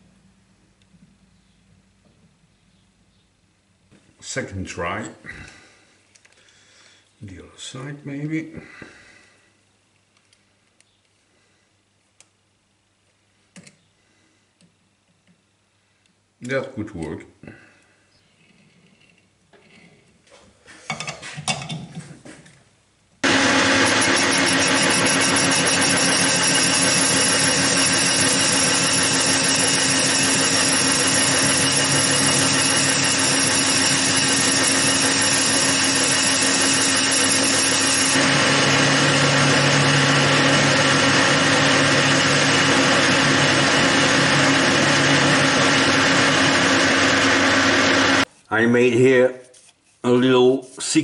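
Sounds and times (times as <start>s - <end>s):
metal lathe cutting: 23.2s - 48.2s.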